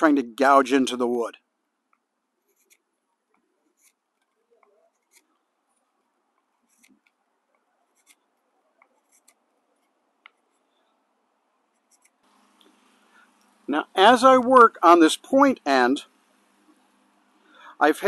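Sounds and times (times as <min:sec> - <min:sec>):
knife shaving wooden dowel: 0:02.4 - 0:10.9, 0:11.7 - 0:12.5.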